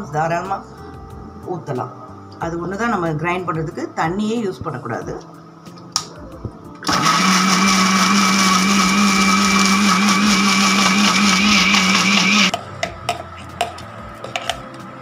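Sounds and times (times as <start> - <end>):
mixer grinder motor hum: 6.8 - 12.5.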